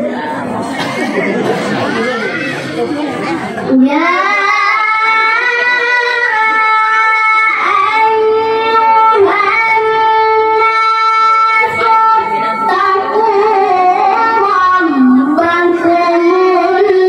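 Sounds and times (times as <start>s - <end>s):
boy reciting melodically: 3.6s - 17.0s.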